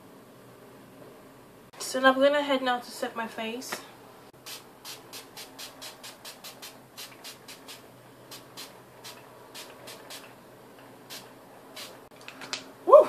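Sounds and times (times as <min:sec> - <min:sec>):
spray bottle hissing: 0:04.4 - 0:10.3, 0:11.1 - 0:12.1.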